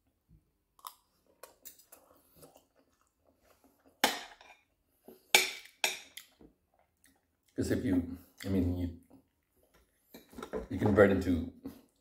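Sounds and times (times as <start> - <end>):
person chewing food: 0.7 - 7.6.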